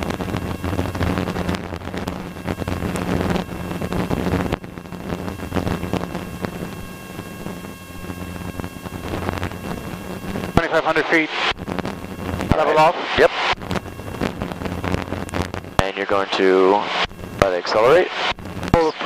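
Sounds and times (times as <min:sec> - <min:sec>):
propeller plane engine drone: 0:00.0 - 0:19.0.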